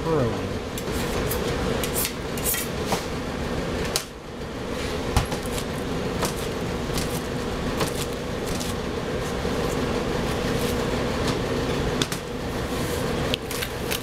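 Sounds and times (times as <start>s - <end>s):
kitchen machinery hum: 0.0s - 14.0s
knife cutting pizza in box: 5.4s - 9.8s.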